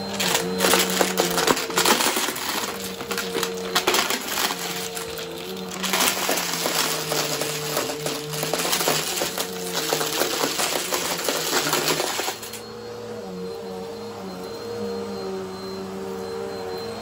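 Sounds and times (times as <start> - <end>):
small pieces rattling through vacuum: 0.0 - 12.6
vacuum cleaner motor humming: 0.0 - 17.0.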